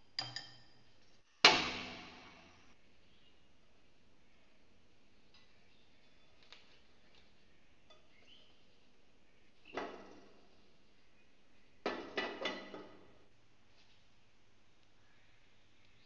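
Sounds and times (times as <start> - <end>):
frying pan clanking on stove: 11.9 - 13.1.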